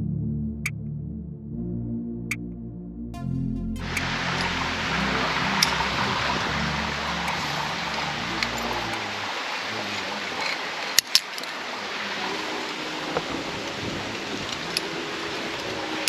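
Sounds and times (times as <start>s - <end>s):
steady outdoor hiss: 3.8s - 16.0s.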